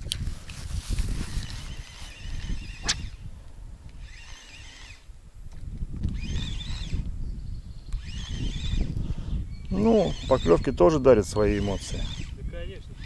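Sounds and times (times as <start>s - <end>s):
wind rumbling on microphone: 0.0s - 13.0s
sharp click: 2.8s - 3.2s.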